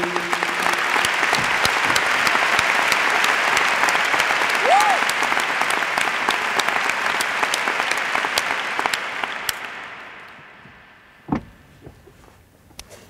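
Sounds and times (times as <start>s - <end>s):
audience applause: 0.0s - 11.2s
low thump: 11.2s - 12.1s.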